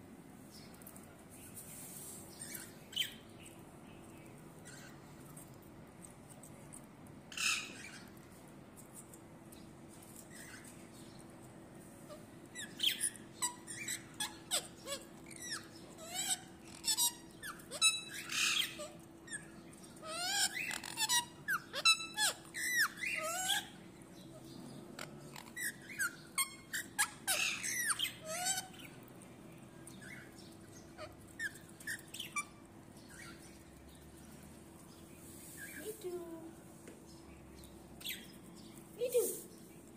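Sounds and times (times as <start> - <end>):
parrot chirps whistles and squawks: 7.3 - 8.1, 12.1 - 23.8, 25.0 - 28.9, 30.0 - 33.4.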